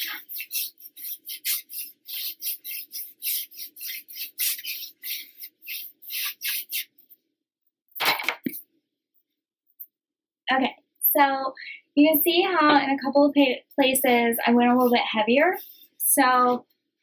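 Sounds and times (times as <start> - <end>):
paintbrush scratching on wood: 0.0 - 7.0, 15.6 - 16.0.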